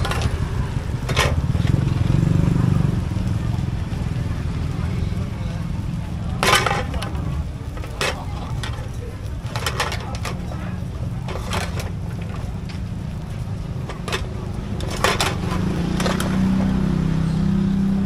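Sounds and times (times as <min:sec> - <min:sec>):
metal pan clinking and scraping: 0:00.0 - 0:00.4, 0:01.0 - 0:01.5, 0:06.4 - 0:12.4, 0:13.8 - 0:16.6
gas burner rushing: 0:00.0 - 0:02.9, 0:04.7 - 0:17.1
batter frying: 0:00.0 - 0:17.2.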